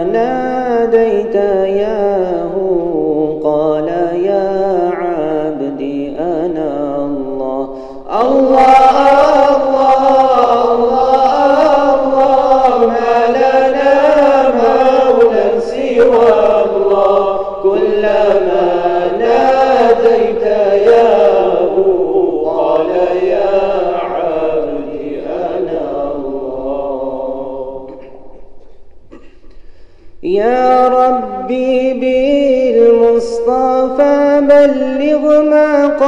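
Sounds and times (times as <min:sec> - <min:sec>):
group singing unaccompanied: 0:03.3 - 0:28.6.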